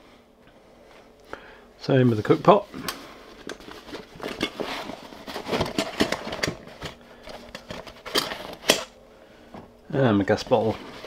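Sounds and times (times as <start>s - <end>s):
canvas pouch rustling and scraping: 3.6s - 6.5s.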